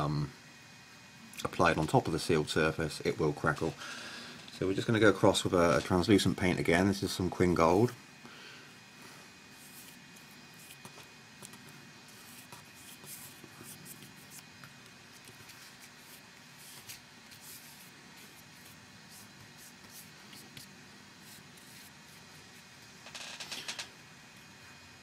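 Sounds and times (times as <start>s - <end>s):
paintbrush swishing on card: 9.6s - 11.0s, 12.1s - 14.5s, 15.1s - 22.2s.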